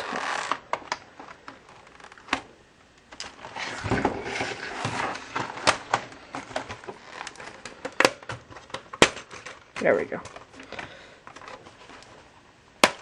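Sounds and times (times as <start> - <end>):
laptop scraping on bench: 3.5 - 5.6.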